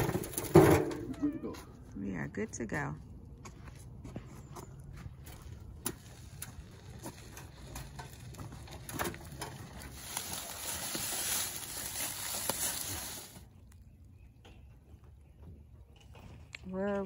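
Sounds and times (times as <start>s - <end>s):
rocks knocking in wheelbarrow: 0.0s - 1.2s
wheel and footsteps on dry leaves: 0.0s - 2.9s, 3.6s - 13.9s.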